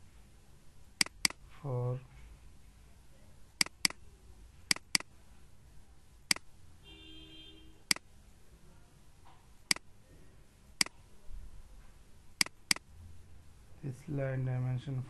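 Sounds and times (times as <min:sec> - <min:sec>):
computer mouse clicking: 0:01.0 - 0:01.4, 0:03.6 - 0:04.0, 0:04.7 - 0:05.1.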